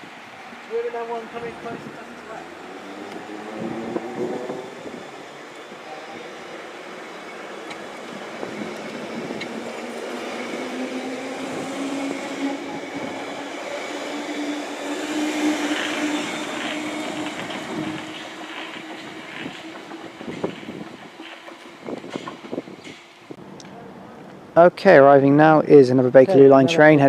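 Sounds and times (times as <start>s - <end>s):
train wheels rumbling on rail: 0.0s - 24.4s
traction motor hum: 2.0s - 23.4s.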